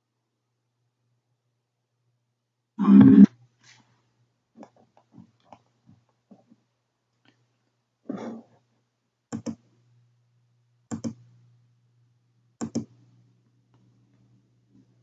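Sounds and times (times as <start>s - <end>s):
computer mouse double-clicks: 9.3s - 9.6s, 10.9s - 11.2s, 12.6s - 13.0s.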